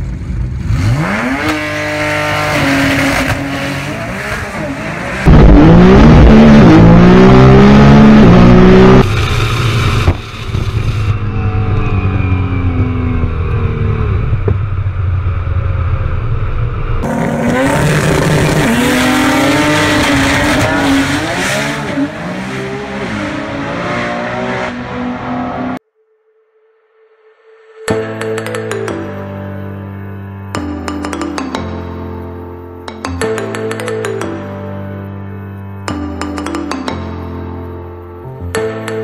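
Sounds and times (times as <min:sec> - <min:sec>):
race car engine revving: 0:00.4 - 0:25.8.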